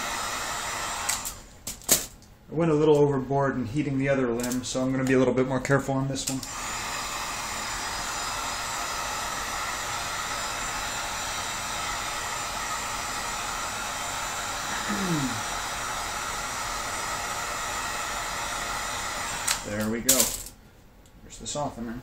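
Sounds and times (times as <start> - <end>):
heat gun blowing hot air: 0.0 - 1.5, 6.3 - 20.4.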